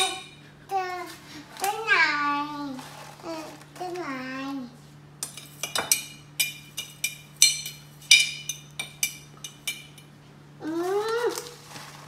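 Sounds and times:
metal spoon clinking glass jar: 0:05.2 - 0:10.1.

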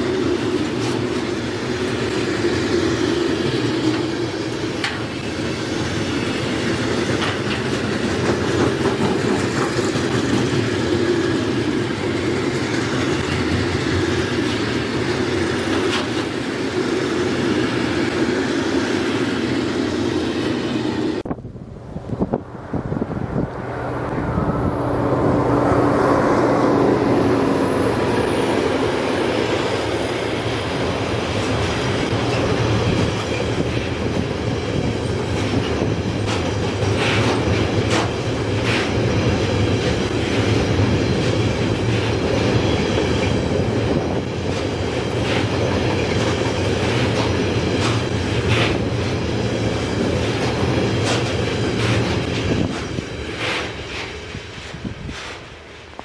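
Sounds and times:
train wheels rumbling on rails: 0:00.0 - 0:56.0
falling tone: 0:21.8 - 0:29.0.

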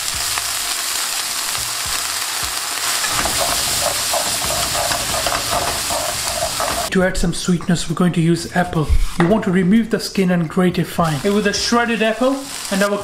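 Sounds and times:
onions sizzling in hot oil: 0:00.0 - 0:07.3, 0:08.6 - 0:09.2, 0:10.8 - 0:13.0
spatula scraping a pan: 0:02.9 - 0:07.0.

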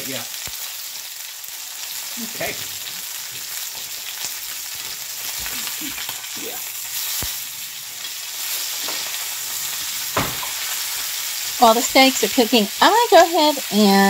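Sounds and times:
steaks sizzling in a skillet: 0:00.0 - 0:14.0
metal tongs scraping a pan: 0:07.0 - 0:12.9.

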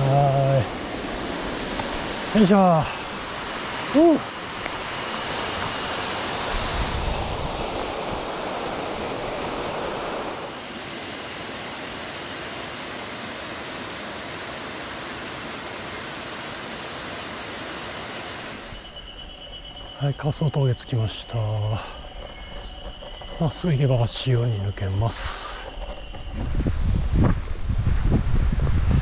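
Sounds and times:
steady rushing noise: 0:00.0 - 0:19.0.

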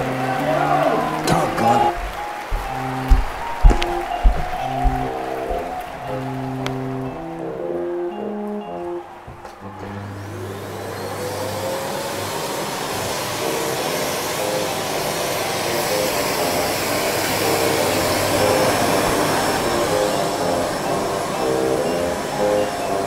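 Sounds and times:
vacuum cleaner motor whining: 0:09.2 - 0:23.0.

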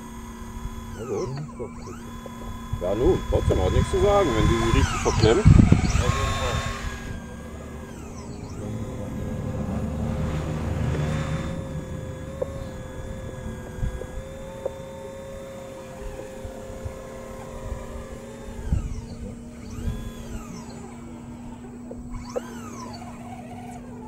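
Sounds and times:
model excavator motor whine: 0:00.0 - 0:24.0
rough mechanical noise: 0:00.0 - 0:24.0
small clicks: 0:10.2 - 0:24.0.

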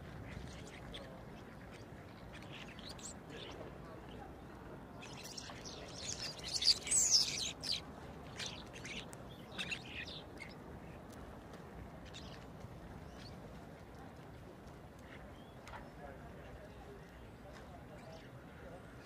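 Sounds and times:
low steady background noise: 0:00.0 - 0:19.0
starlings calling: 0:01.6 - 0:03.6, 0:05.0 - 0:10.6.

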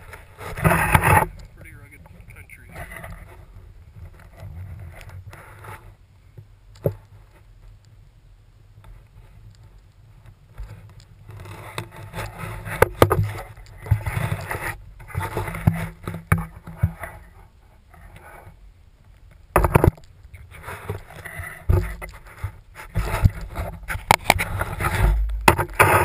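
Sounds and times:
clothing rubbing on camera: 0:10.6 - 0:18.6, 0:19.7 - 0:26.0.

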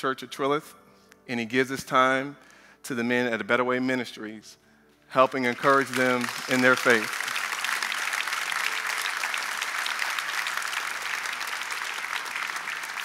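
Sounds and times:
crowd applauding: 0:05.2 - 0:13.0.

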